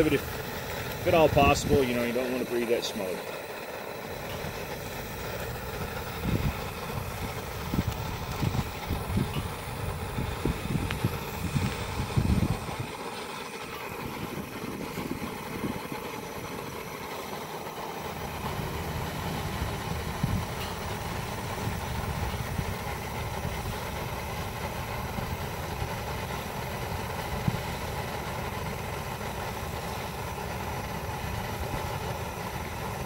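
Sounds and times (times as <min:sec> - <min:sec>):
gas burner hissing: 0:00.0 - 0:33.0
wind buffeting microphone: 0:05.8 - 0:12.9, 0:13.9 - 0:16.8, 0:19.5 - 0:24.0.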